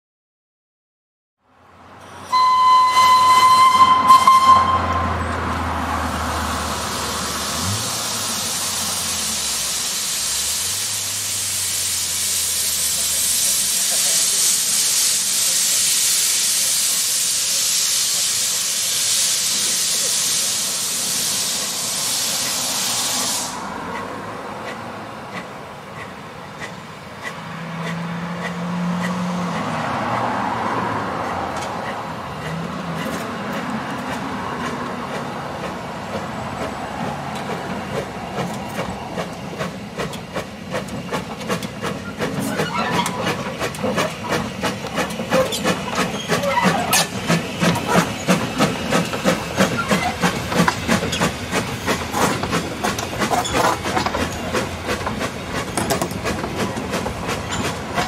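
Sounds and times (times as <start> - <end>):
steam locomotive exhaust chuffs: 2.3 - 58.0
steam hissing from drain cocks: 6.4 - 24.1
wheels clattering on rail joints: 23.8 - 58.0.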